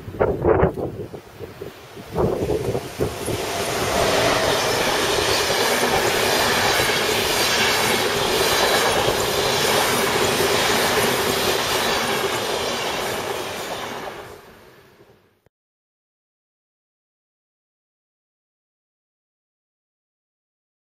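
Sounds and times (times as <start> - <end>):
train wheels rushing on rail: 0.1 - 15.2.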